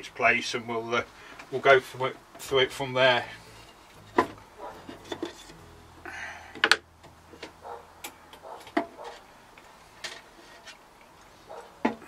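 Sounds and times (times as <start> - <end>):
metal scrape: 3.1 - 5.7.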